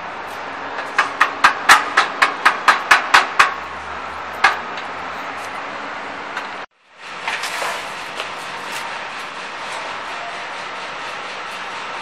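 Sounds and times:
hammer striking steel frame: 0:00.8 - 0:03.7, 0:04.4 - 0:04.9.

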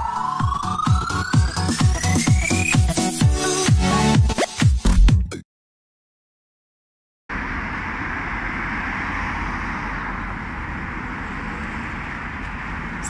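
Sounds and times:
cars passing on street: 0:07.3 - 0:13.0.

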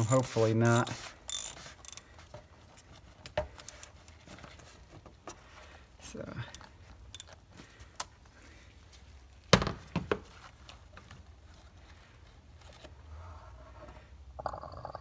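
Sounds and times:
ratchet wrench clicking and knocking: 0:00.0 - 0:02.0.

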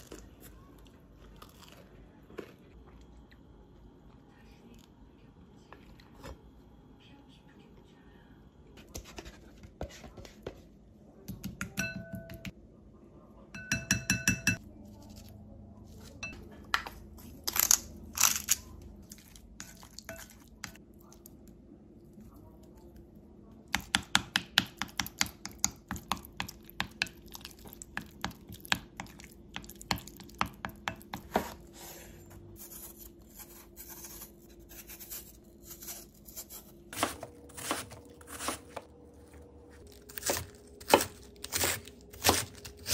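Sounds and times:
metal spoon clinking glass bowl: 0:13.6 - 0:14.6
knife peeling apple: 0:32.5 - 0:38.9.

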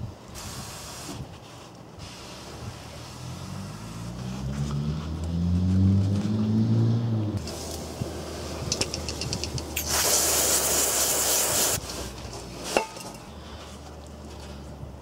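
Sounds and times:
aerosol spray hissing: 0:09.8 - 0:11.8.

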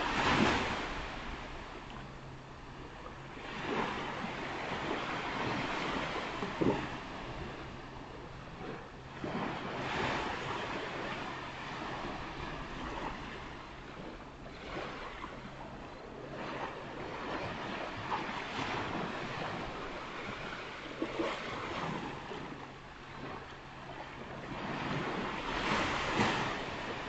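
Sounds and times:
ocean waves breaking: 0:00.0 - 0:27.0
wind on microphone: 0:00.0 - 0:27.0.

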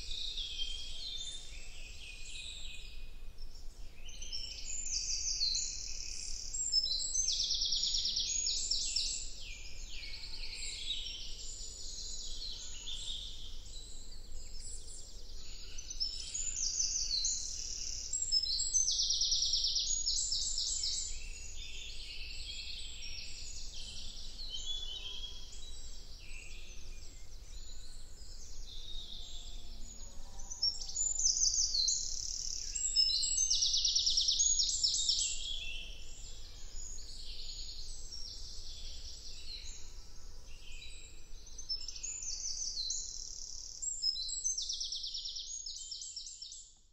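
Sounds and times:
small birds singing: 0:00.0 - 0:46.9.

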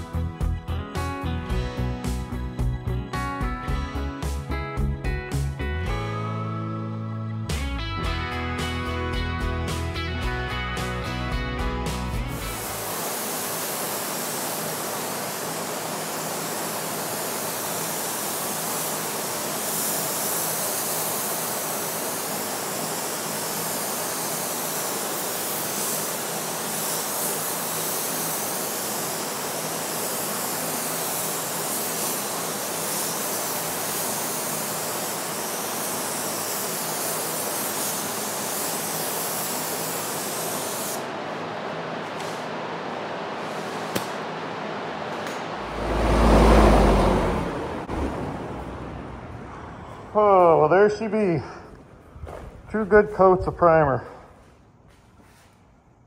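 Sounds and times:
spray gun hissing: 0:12.2 - 0:41.1.

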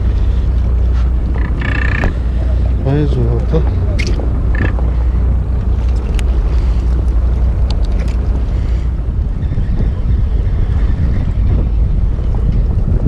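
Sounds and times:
fishing boat engine noise: 0:00.0 - 0:13.0
wind rumbling on microphone: 0:00.0 - 0:13.0
light ticks: 0:07.0 - 0:08.2.

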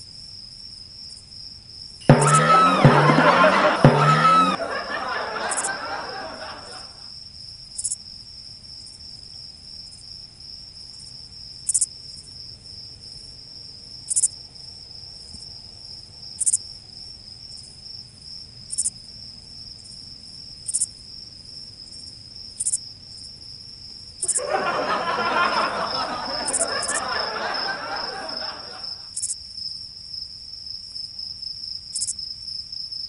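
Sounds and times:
cricket chirps: 0:00.0 - 0:02.1, 0:07.1 - 0:33.0
crickets trilling: 0:25.7 - 0:33.0.

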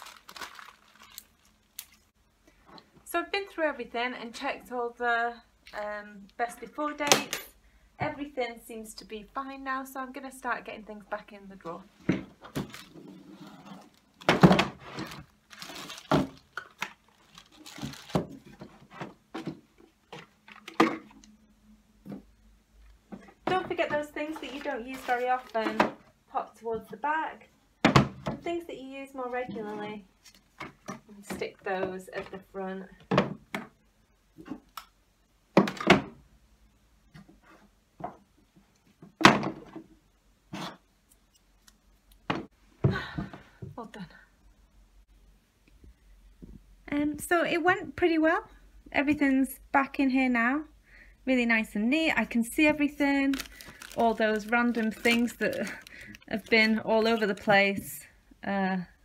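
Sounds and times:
plastic packaging rustling: 0:00.0 - 0:02.1, 0:12.4 - 0:19.2, 0:23.8 - 0:25.8, 0:52.8 - 0:58.0.

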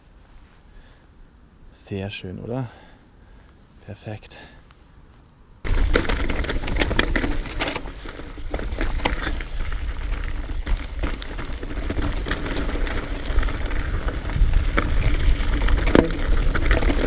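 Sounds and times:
bike clattering over rough trail: 0:05.6 - 0:17.0.

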